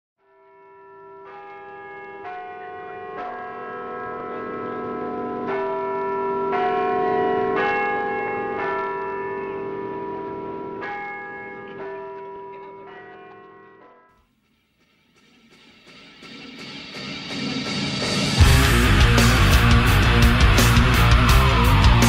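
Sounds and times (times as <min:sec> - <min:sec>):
church bells ringing: 0:00.3 - 0:14.1, 0:18.4 - 0:22.0.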